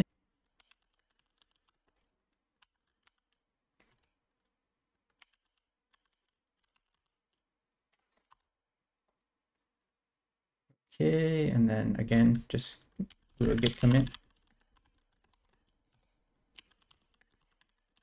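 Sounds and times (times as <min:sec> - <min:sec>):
computer keyboard keystrokes: 0:00.5 - 0:04.1, 0:05.1 - 0:07.2, 0:13.0 - 0:15.8, 0:16.5 - 0:18.0.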